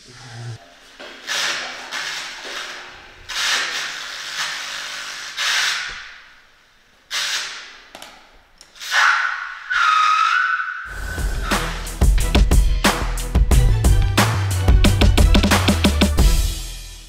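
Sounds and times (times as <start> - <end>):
harsh electronic noise bursts: 1.2 - 6.1
steady high whistle tone: 8.8 - 11.9.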